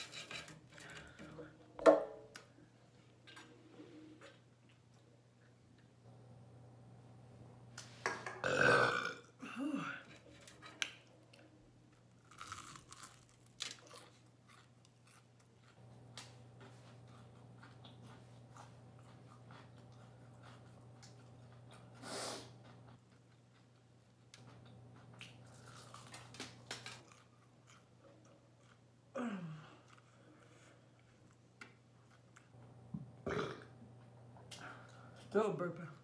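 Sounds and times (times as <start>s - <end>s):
woman burping loudly: 8.4s - 10.0s, 33.2s - 33.7s
chewing crunchy food: 10.8s - 28.9s, 29.8s - 32.8s.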